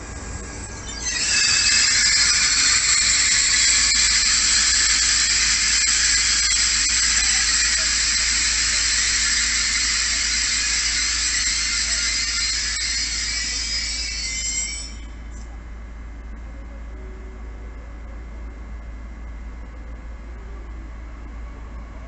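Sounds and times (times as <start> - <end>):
train brake squeal: 0.5 - 15.6.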